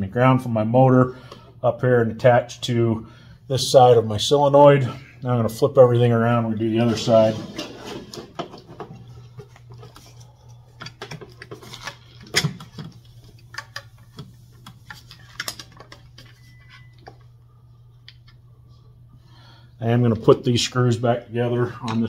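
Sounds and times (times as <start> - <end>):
steady low hum: 0.0 - 22.0
clicks and taps of handling parts: 10.8 - 17.3.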